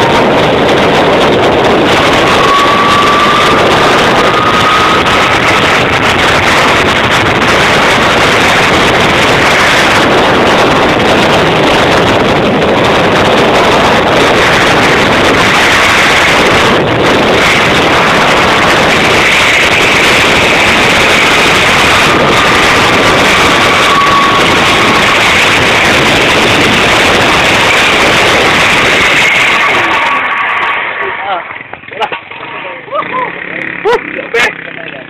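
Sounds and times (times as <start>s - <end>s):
wind rushing on microphone: 0.0s - 32.0s
faint whine: 0.0s - 35.0s
zipline trolley humming on cable: 0.0s - 35.0s.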